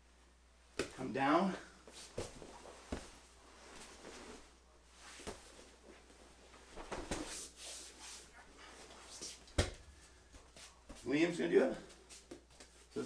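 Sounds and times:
fabric rustling: 1.8s - 10.9s
bodies scuffing on mats: 1.8s - 11.1s.

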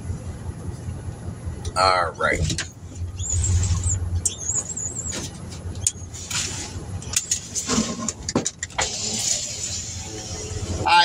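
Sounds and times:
car engine idling: 0.0s - 11.0s
thin wavering high squeak: 3.0s - 5.3s.

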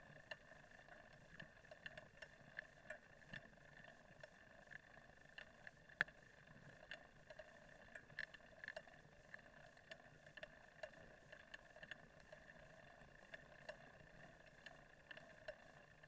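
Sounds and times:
faint clicks and knocks: 0.0s - 16.0s
faint steady hum: 0.0s - 16.0s.

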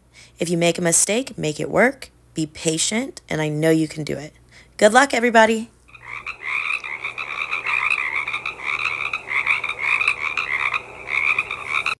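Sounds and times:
frogs calling: 5.9s - 12.0s.

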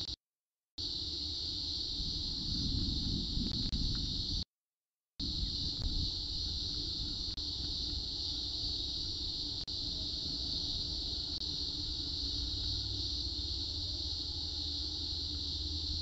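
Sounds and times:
high-pitched hiss: 0.8s - 4.5s, 5.2s - 16.0s.

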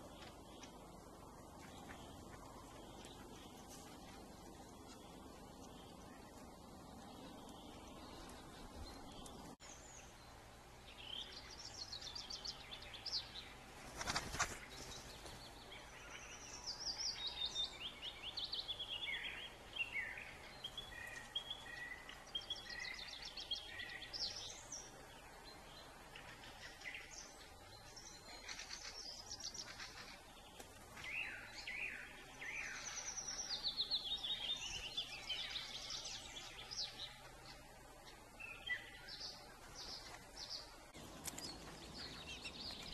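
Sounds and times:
small birds chirping and singing: 0.0s - 42.9s.

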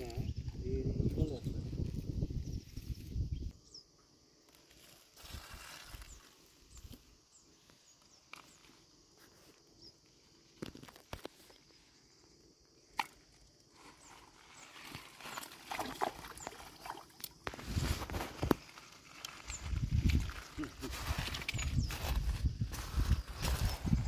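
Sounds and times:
fish splashing at surface: 14.8s - 17.7s.

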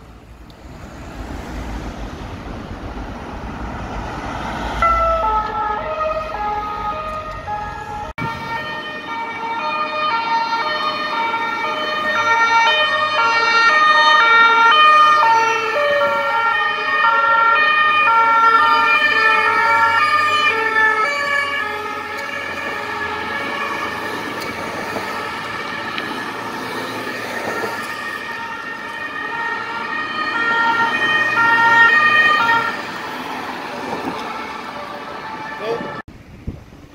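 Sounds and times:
police van sirens: 1.0s - 36.1s
two-tone ambulance siren: 3.8s - 36.1s.

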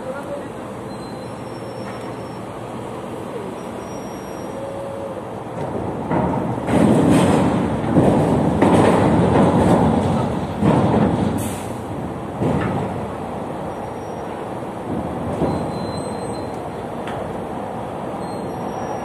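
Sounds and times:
crane metallic running and rattling: 5.4s - 17.5s.

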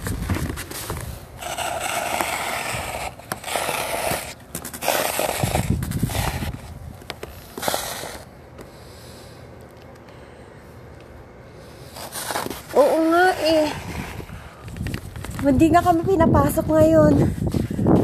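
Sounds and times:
hand scraping through snow: 0.8s - 6.7s, 7.4s - 8.3s, 11.8s - 14.6s.

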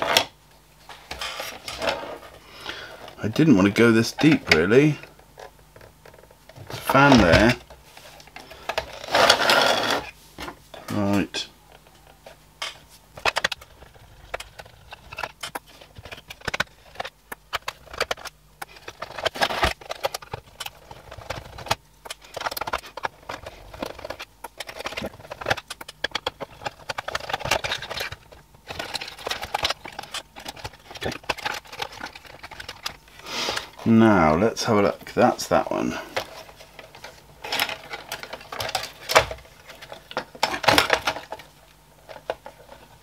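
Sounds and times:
plastic housing parts knocking: 11.8s - 33.0s, 36.1s - 42.8s.

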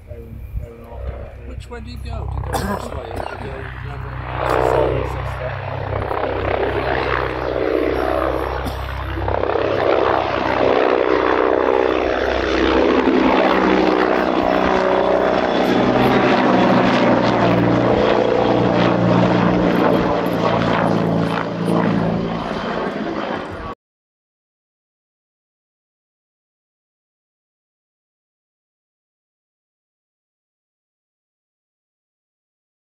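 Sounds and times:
helicopter flying by: 0.0s - 23.8s.

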